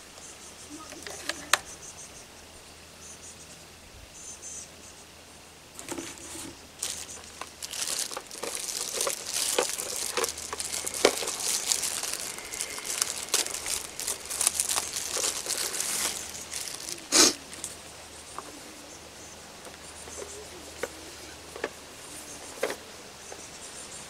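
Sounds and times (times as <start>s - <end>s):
plastic packaging crinkling: 5.8s - 17.8s.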